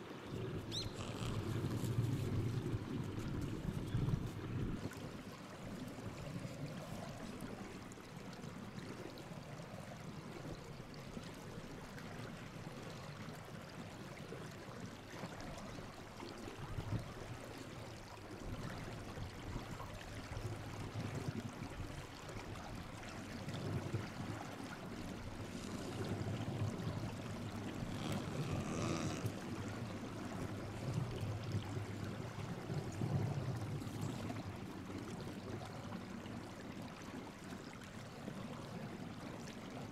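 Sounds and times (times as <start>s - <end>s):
seal grunting: 27.7s - 29.5s.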